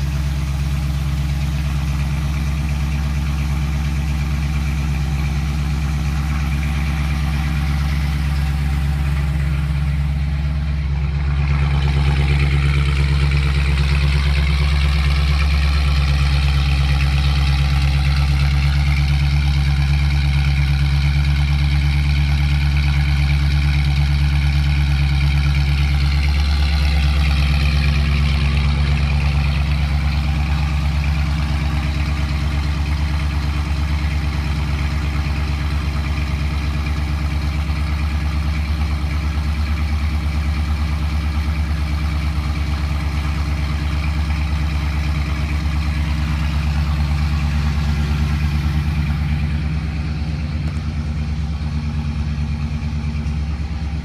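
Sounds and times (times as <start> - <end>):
pickup engine idling: 0.0 - 54.0.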